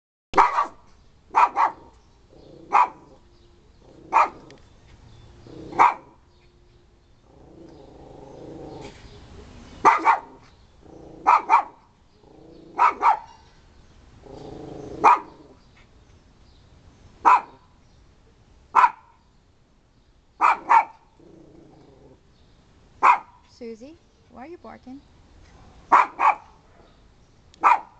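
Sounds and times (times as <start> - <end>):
small dog barking sharply: 0.4 - 1.9, 2.7 - 3.0, 5.8 - 6.1, 9.8 - 10.4, 11.2 - 11.8, 12.8 - 13.4, 15.0 - 15.4, 17.2 - 17.6, 18.8 - 19.1, 20.4 - 21.0, 23.0 - 23.5, 25.9 - 26.9, 27.6 - 27.9
dog growling: 2.3 - 3.2, 5.4 - 5.9, 7.3 - 9.0, 10.8 - 11.5, 12.2 - 13.0, 14.2 - 15.6, 21.2 - 22.2.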